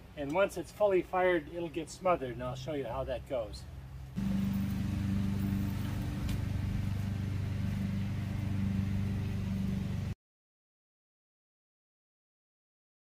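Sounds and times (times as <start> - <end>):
low motor hum: 3.6 - 10.2.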